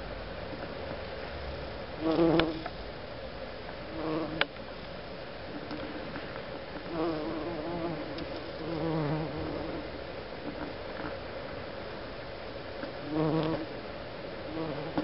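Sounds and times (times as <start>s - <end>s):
bumblebee buzzing: 2.0s - 2.7s, 4.0s - 4.4s, 6.9s - 9.8s, 13.1s - 13.7s, 14.5s - 15.0s.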